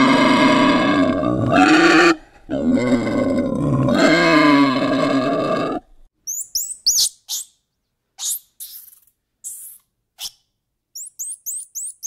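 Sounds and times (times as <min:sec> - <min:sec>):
high squeaks and chirps: 0:06.3 - 0:07.6, 0:08.2 - 0:12.0.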